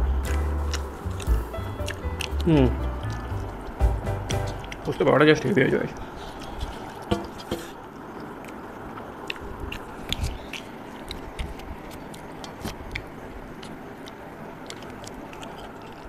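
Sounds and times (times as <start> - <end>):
chewing and mouth smacks: 0.2 - 5.0, 8.1 - 16.0.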